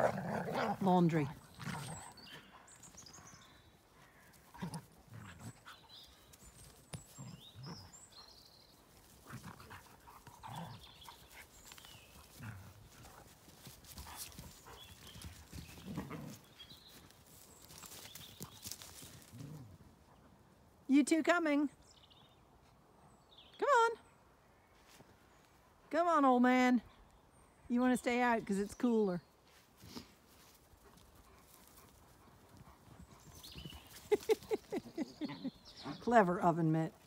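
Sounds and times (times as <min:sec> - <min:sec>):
dogs grunting and growling: 0:00.0 - 0:02.5, 0:33.1 - 0:36.1
birds chirping: 0:00.0 - 0:19.6, 0:25.2 - 0:37.0.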